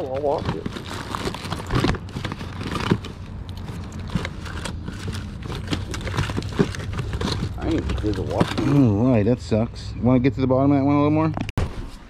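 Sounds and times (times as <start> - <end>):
hands rummaging through plastic tote: 0.0 - 9.1.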